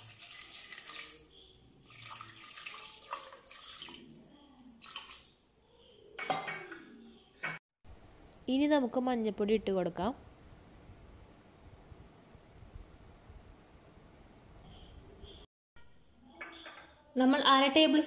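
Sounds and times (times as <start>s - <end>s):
water splashing into a pot: 0.0s - 5.4s.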